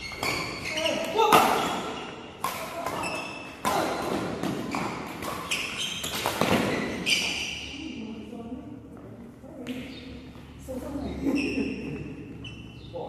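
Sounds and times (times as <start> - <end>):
shoes squeaking on court floor: 0.0 - 8.0, 11.2 - 12.9
racket striking shuttlecock: 0.1 - 7.4.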